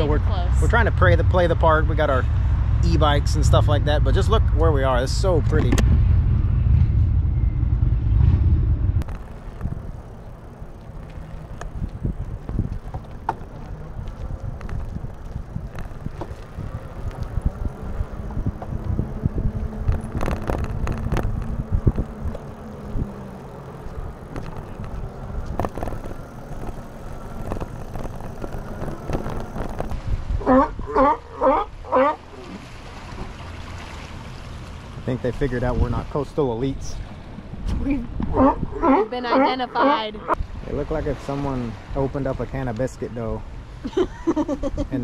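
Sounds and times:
wind rumble on microphone: 0.0s - 33.4s, 34.6s - 45.0s
low steady hum: 0.0s - 45.0s
bike rattling and clicking: 9.0s - 30.0s
bike tyres rolling on pavement: 9.0s - 30.6s.

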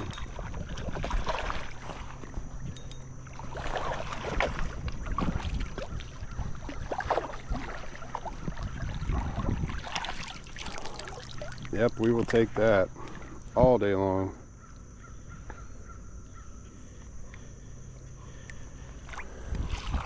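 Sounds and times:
fish splashing in water: 0.0s - 2.6s, 3.2s - 11.8s
wind buffeting microphone: 0.0s - 2.9s, 3.6s - 10.2s, 19.4s - 20.0s.

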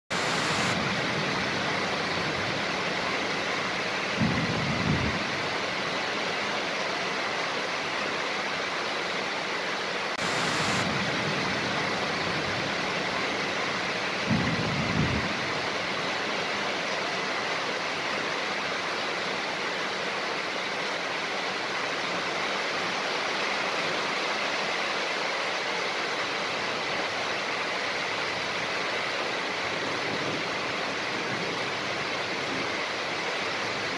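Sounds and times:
burst of hiss: 0.1s - 0.9s, 10.2s - 11.1s
heavy rain pouring: 0.1s - 33.9s
low rumbles of thunder: 4.2s - 5.4s, 14.2s - 15.6s.

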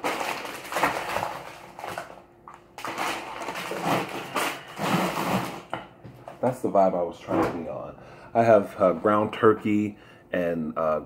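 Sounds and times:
plastic bags crinkling: 0.0s - 5.7s.

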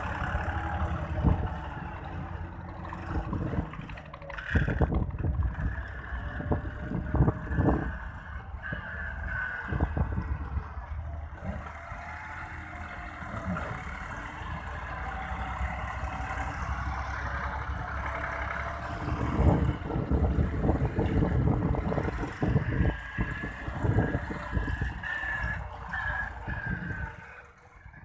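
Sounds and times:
tractor diesel engine running: 0.0s - 28.0s
wind buffeting microphone: 2.8s - 8.9s, 9.6s - 11.7s, 17.7s - 28.0s.

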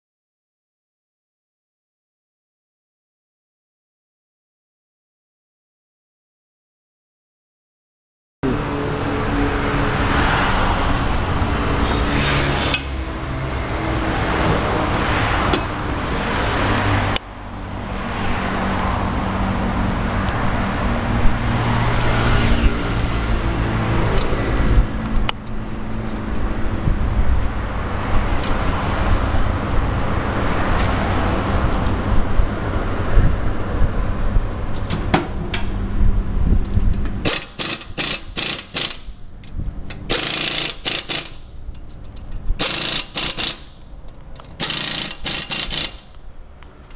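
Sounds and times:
sharp metallic knocks: 37.2s - 39.2s, 40.0s - 41.5s, 42.5s - 43.9s, 44.5s - 46.1s.

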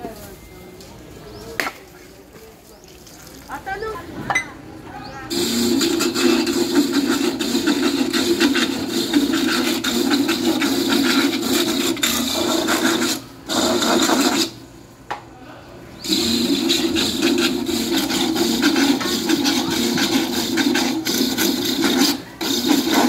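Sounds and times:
motor hum: 5.0s - 14.6s, 16.0s - 23.0s
coconut grater rasping scrape: 5.3s - 14.6s, 16.0s - 23.0s.

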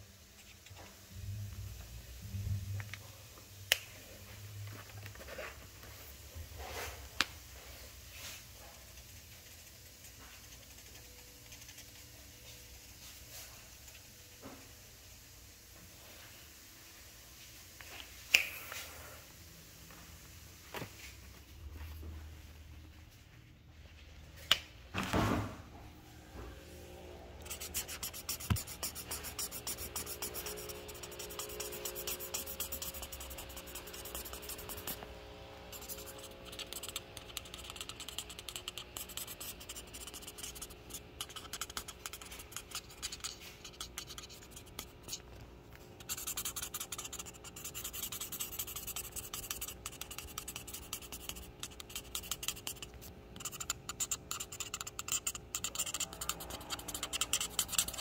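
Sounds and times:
pencil strokes on paper: 8.1s - 14.0s, 27.4s - 45.2s, 46.0s - 58.0s.

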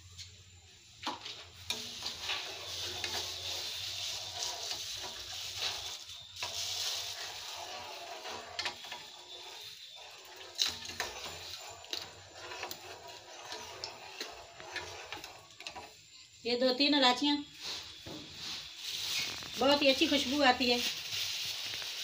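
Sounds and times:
syrup bubbling in a pan: 0.9s - 16.2s.

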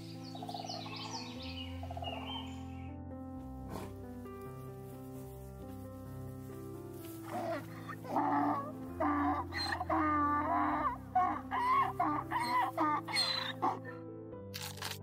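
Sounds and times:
background music with held notes: 0.0s - 15.0s
deer squealing calls: 7.2s - 13.9s.

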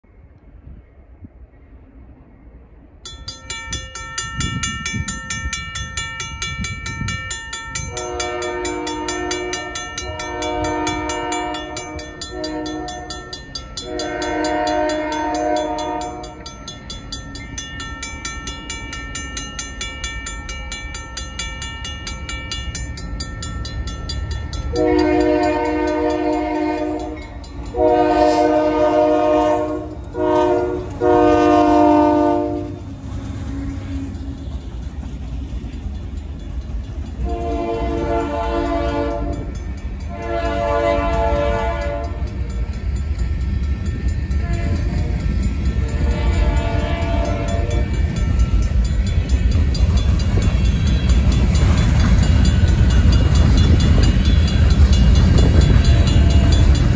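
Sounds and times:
train low rumble: 0.0s - 56.9s
mechanical crossing bell ringing: 3.1s - 27.9s, 41.8s - 56.9s
locomotive air horn blasts: 7.9s - 16.4s, 24.7s - 32.8s, 37.2s - 39.5s, 40.1s - 42.3s, 44.4s - 45.1s, 45.8s - 47.9s.

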